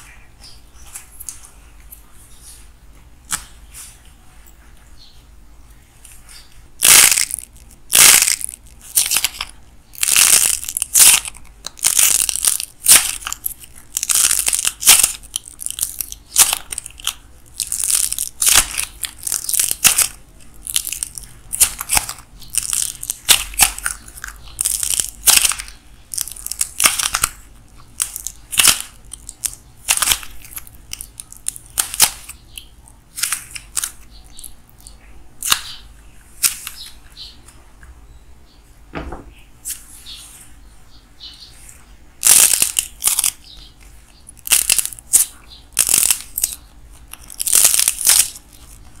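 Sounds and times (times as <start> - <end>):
clay cracking and crunching: 6.8 - 35.8, 42.2 - 49.0.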